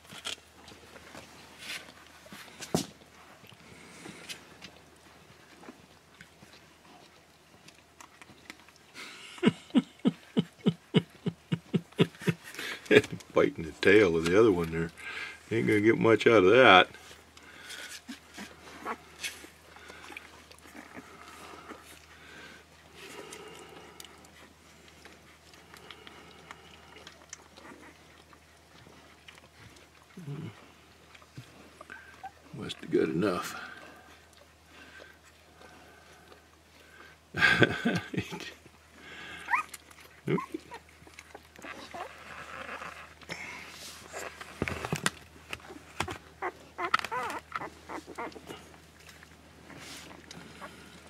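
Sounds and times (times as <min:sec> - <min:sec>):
low steady hum: 0:00.0 - 0:51.0
puppies squeaking: 0:39.4 - 0:43.2, 0:45.6 - 0:48.6.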